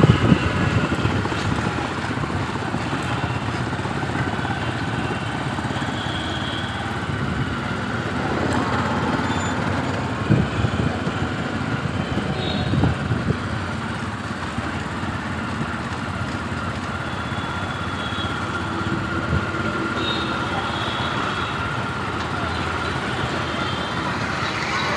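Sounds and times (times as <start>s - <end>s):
wind on microphone: 0.0s - 1.8s
motorbike engine running: 0.0s - 24.9s.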